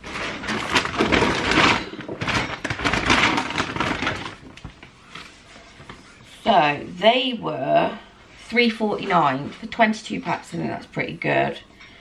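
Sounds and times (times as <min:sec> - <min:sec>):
paper and bags rustling: 0:00.0 - 0:06.2.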